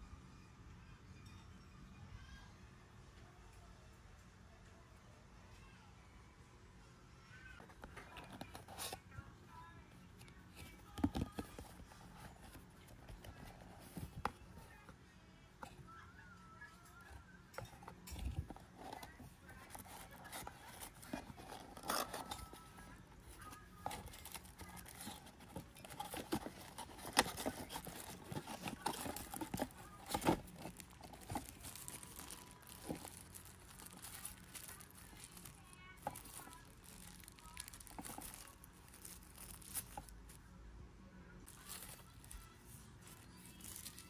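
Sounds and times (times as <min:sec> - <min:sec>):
plastic wrapping crinkling: 0:07.8 - 0:09.0, 0:10.2 - 0:14.9, 0:17.5 - 0:40.4, 0:41.4 - 0:44.0.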